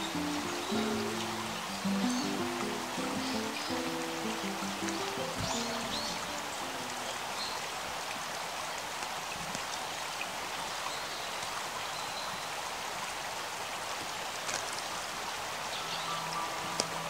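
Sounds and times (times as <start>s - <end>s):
water hissing: 0.0s - 7.0s.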